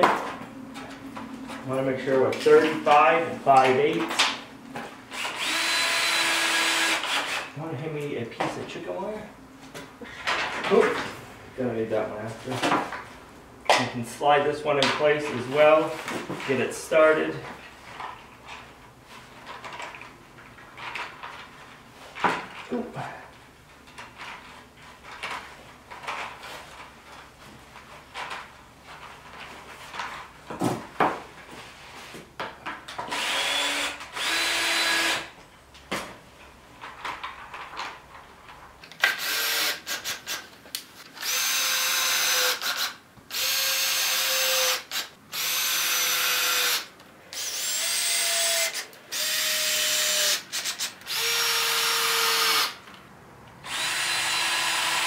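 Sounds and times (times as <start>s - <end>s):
cordless drill driving screws: 5.1s - 7.5s, 33.1s - 35.3s, 39.0s - 40.4s, 41.2s - 52.8s, 53.6s - 55.0s.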